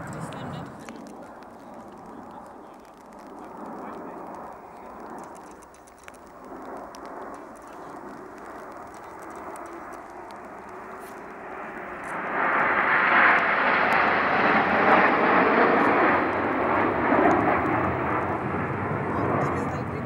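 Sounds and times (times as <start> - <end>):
jets flying past: 0.0 - 20.0.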